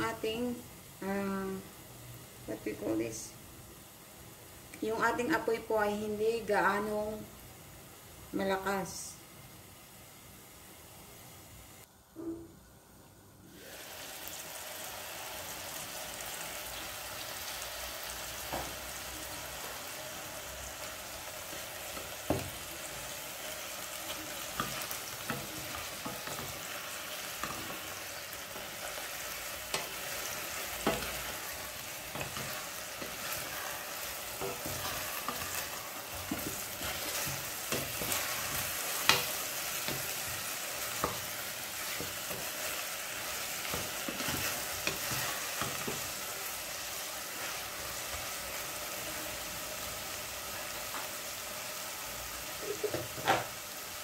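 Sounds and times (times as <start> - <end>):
chicken sizzling in oil: 13.4 - 54.0.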